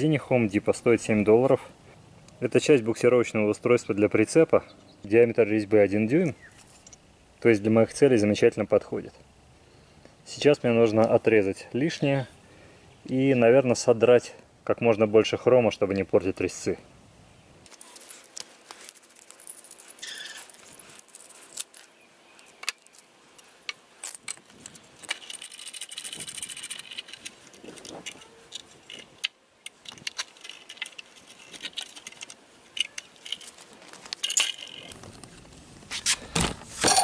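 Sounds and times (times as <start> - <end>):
metal clamp clinking and rattling: 25.0 - 29.1, 29.8 - 35.0.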